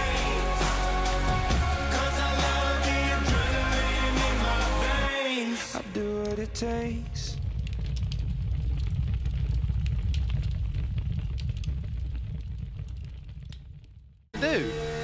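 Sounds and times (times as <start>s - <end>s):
crackles: 5.6s - 14.3s
deep steady rumble: 6.6s - 14.3s.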